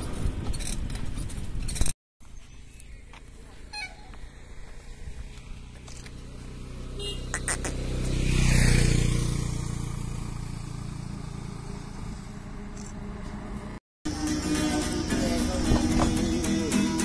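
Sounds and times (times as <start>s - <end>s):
vehicle driving past: 4.2s - 13.8s.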